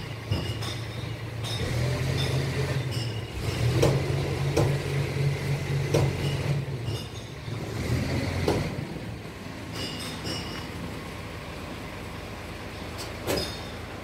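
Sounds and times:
sharp clinks: 0.4s - 3.6s, 9.7s - 10.8s.

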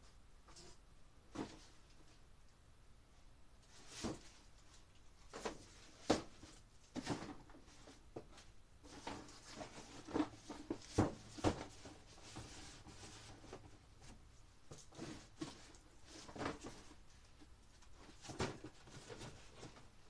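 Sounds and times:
rummaging knocks and clatters: 5.3s - 20.0s.

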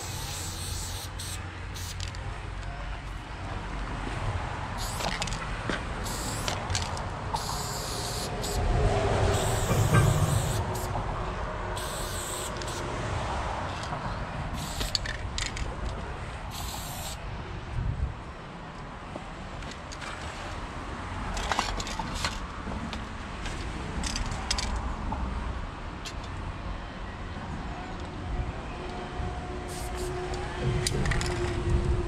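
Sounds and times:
spray paint can hissing: 0.0s - 2.1s, 4.8s - 5.3s, 6.0s - 6.7s, 7.3s - 8.7s, 9.3s - 11.0s, 11.8s - 12.9s, 14.6s - 15.2s, 16.5s - 17.2s, 29.7s - 30.2s.

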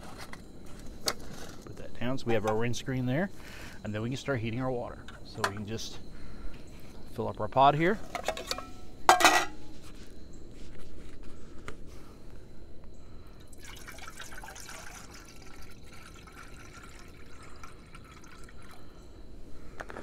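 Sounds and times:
water pouring into metal pot: 13.5s - 18.9s.

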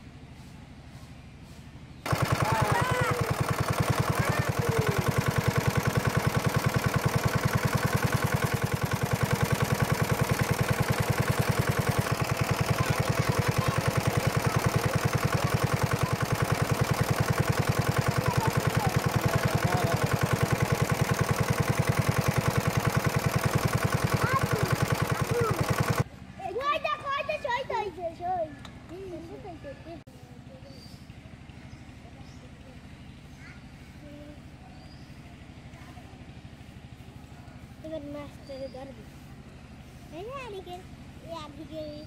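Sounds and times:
water pump engine chugging: 2.0s - 27.9s, 30.1s - 42.0s
faint bird chirps: 30.6s - 35.4s.

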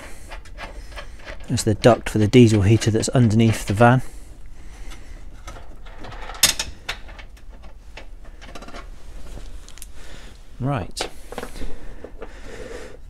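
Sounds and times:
parts and tools clattering: 4.8s - 8.9s.

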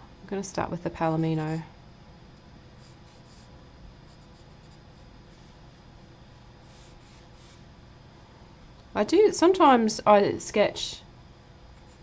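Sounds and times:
pencil scratching on paper: 2.8s - 5.6s, 6.6s - 7.7s.

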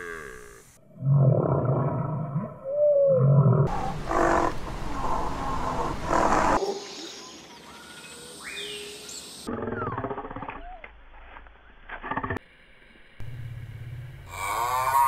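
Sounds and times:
high gliding animal calls: 14.3s - 15.0s
low animal call with squeal: 14.3s - 15.0s
rough animal call: 14.3s - 15.0s.

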